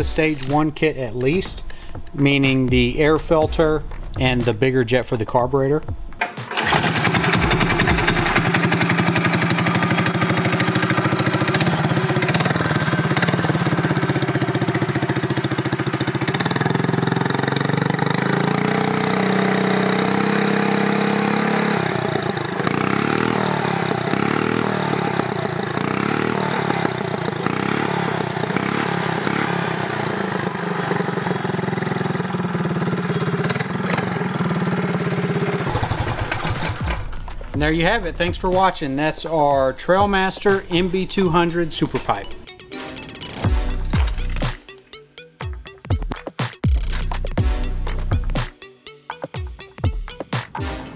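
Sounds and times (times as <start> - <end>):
mini bike engine revving: 6.2 - 38.0.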